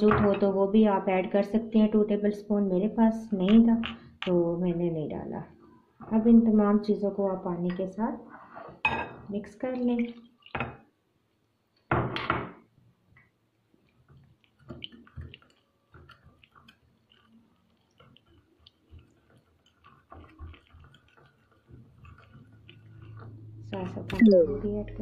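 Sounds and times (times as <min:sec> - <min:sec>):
wire whisk stirring batter: 0:13.7 - 0:25.0
whisk clicking against bowl: 0:13.9 - 0:24.3.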